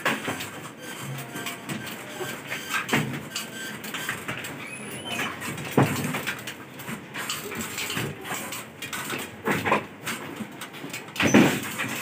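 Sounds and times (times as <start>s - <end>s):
knocks and rattles on metal: 2.8s - 12.0s.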